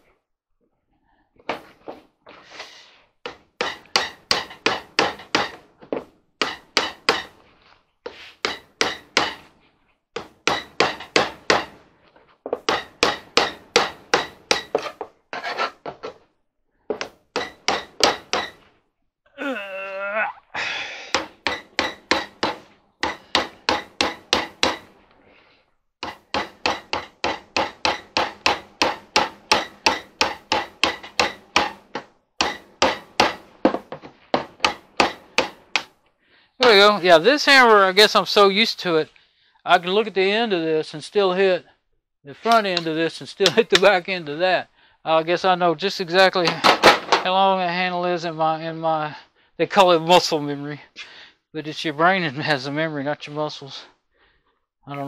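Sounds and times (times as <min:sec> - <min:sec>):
rapid hammer taps: 0:03.2 - 0:07.4, 0:21.1 - 0:24.9, 0:26.0 - 0:36.0.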